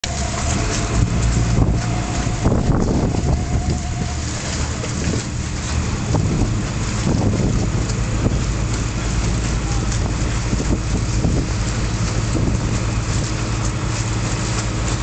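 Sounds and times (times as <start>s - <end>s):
thin steady whine: 0.0s - 7.0s
ferry engine humming: 0.0s - 15.0s
wind buffeting microphone: 0.0s - 15.0s.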